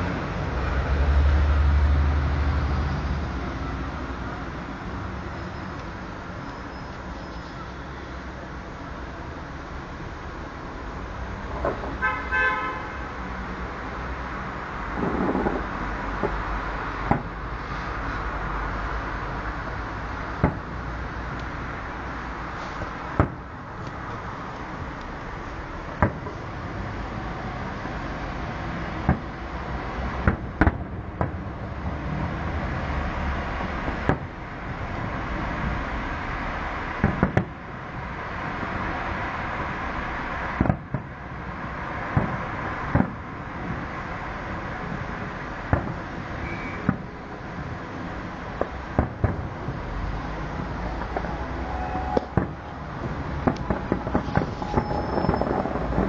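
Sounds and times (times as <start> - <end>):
outdoor background noise: 0.0 - 56.0
steady rushing background noise: 0.0 - 56.0
distant fireworks bangs: 14.9 - 18.9, 19.6 - 32.4, 33.4 - 34.4, 36.9 - 39.0, 39.6 - 56.0
firework shells bursting: 20.1 - 26.5, 50.5 - 56.0.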